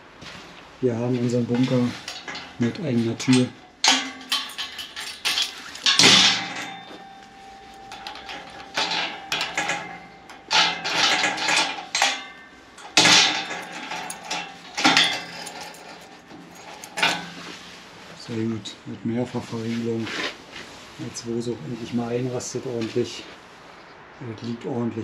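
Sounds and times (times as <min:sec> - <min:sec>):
metal door lock clanking: 0:01.5 - 0:17.6.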